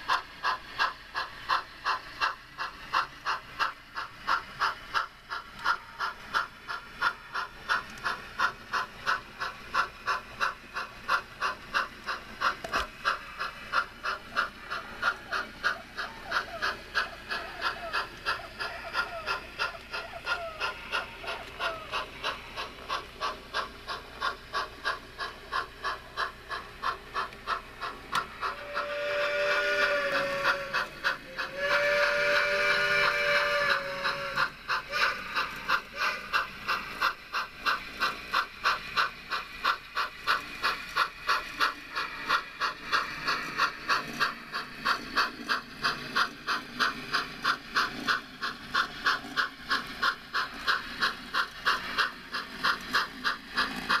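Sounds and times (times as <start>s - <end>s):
model steam locomotive chuffing: 0.0s - 54.0s
steam hissing: 0.0s - 54.0s
locomotive whistle blasts: 28.6s - 35.2s.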